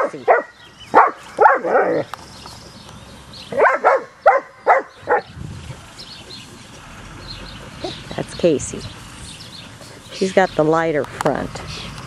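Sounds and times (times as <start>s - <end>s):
puppy barking: 0.0s - 2.1s, 3.5s - 5.3s.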